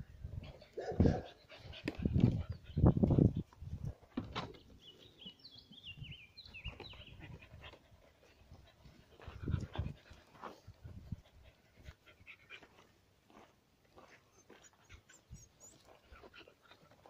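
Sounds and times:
small dogs whining: 14.4 - 16.2.

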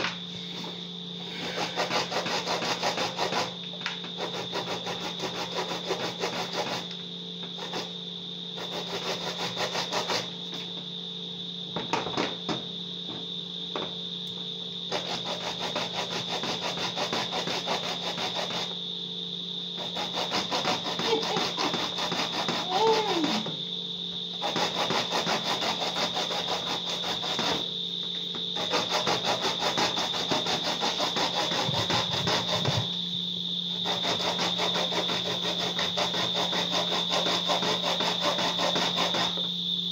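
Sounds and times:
corn grated on metal grater: 1.3 - 3.6, 4.2 - 6.9, 8.6 - 10.3, 14.9 - 18.7, 19.8 - 23.6, 24.4 - 27.6, 28.6 - 32.9, 33.8 - 39.4.

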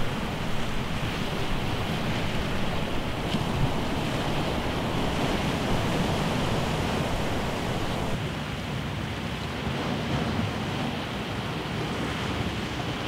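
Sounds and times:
surf washing against rocks: 0.0 - 8.2
wind buffeting microphone: 0.0 - 8.2.

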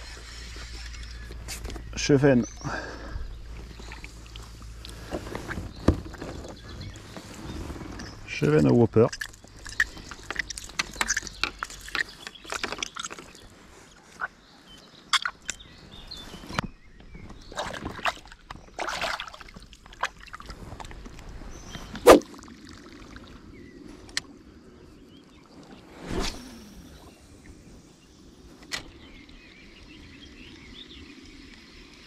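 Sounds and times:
water splashing and sloshing: 0.0 - 24.3.

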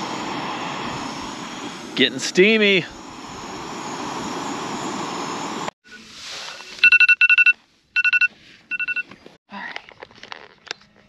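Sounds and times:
camping stove hissing: 0.0 - 6.4
phone timer alarm beeping: 6.8 - 9.1.

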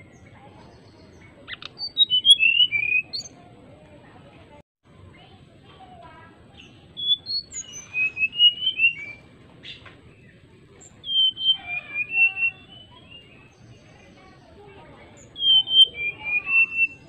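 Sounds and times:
bird singing fluty whistles: 1.5 - 3.4, 6.6 - 9.8, 10.8 - 13.6, 15.2 - 17.0.

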